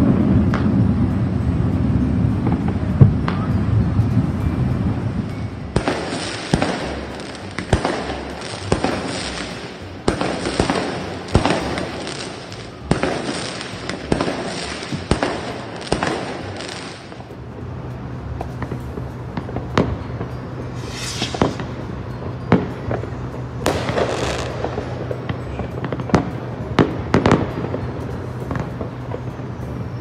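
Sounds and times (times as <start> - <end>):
fireworks crackling hiss: 0.0 - 30.0
fireworks bangs: 5.8 - 17.4, 18.0 - 29.4.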